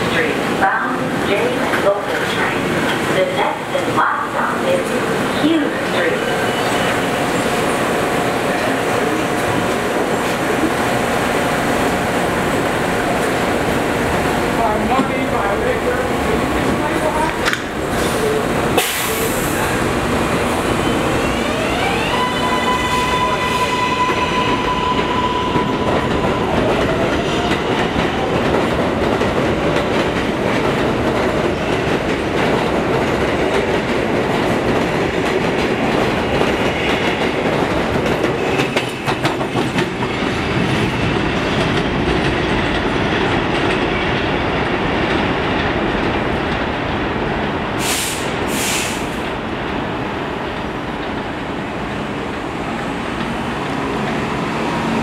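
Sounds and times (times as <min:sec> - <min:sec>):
train rumble and wheel clatter: 0:00.0 - 0:55.0.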